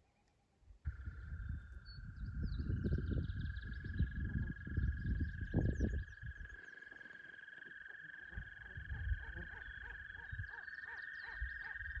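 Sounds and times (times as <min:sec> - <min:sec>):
low rumbles: 0:00.9 - 0:06.5.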